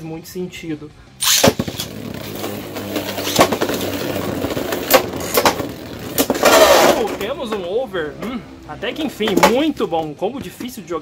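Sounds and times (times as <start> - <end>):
spinning tops clashing: 1.2 - 7.2
spinning tops whirring: 1.2 - 7.2.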